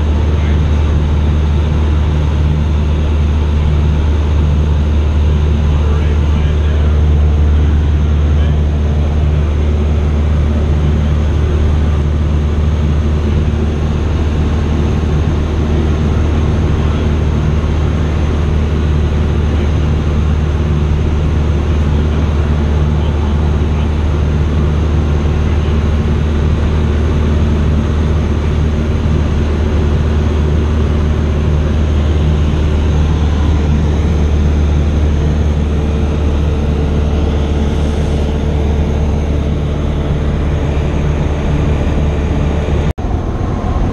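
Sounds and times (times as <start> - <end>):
airplane engine and propeller drone: 0.0 - 43.9.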